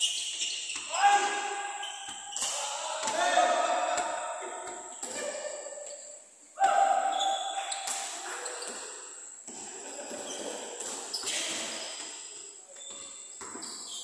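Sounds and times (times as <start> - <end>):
basketballs bouncing on court floor: 12.8 - 13.8.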